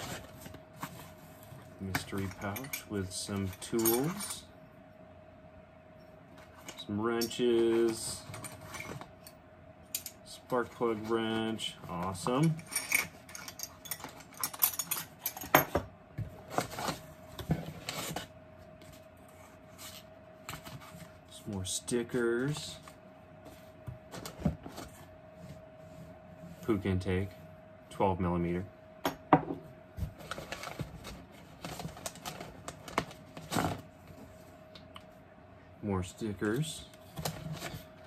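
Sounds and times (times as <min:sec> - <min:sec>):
faint steady hum: 0:00.0 - 0:38.0
metal tools clinking and rattling: 0:01.9 - 0:04.5, 0:12.2 - 0:15.8.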